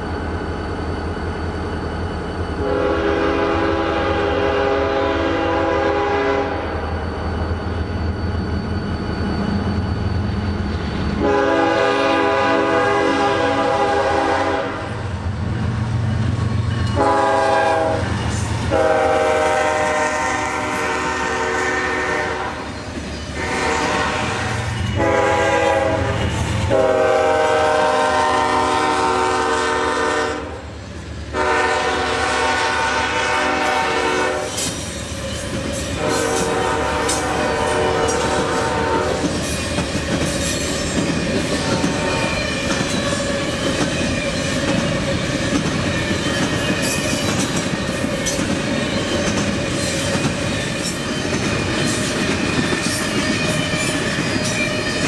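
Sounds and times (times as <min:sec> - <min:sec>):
locomotive air horn blasts: 0:02.6 - 0:06.8, 0:11.2 - 0:15.0, 0:17.0 - 0:18.1, 0:18.7 - 0:22.7, 0:23.4 - 0:30.7, 0:31.3 - 0:34.6, 0:36.0 - 0:39.3.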